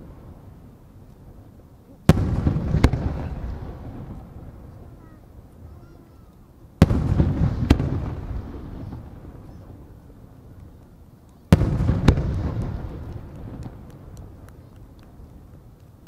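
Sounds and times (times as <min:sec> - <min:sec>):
rolling echo: 0:02.1 - 0:16.0
firework shells bursting: 0:06.3 - 0:16.0.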